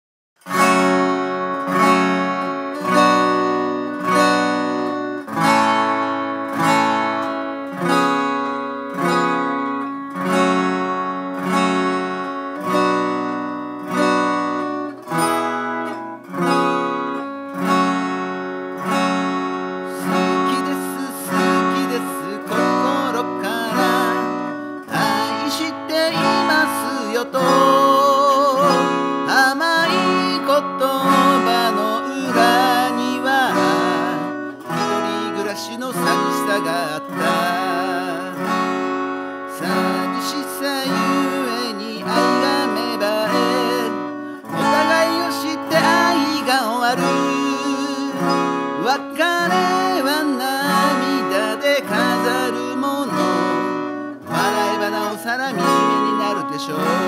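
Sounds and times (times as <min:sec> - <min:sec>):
acoustic guitar strummed: 0:00.4 - 0:57.0
person singing: 0:00.5 - 0:57.0.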